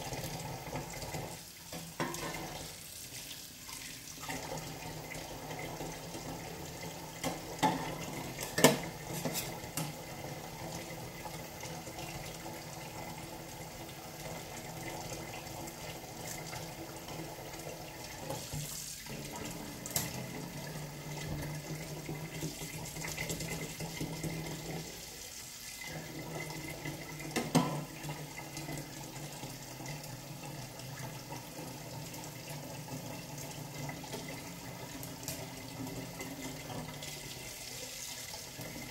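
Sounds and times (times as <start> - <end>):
tap water running into sink: 0.0 - 38.9.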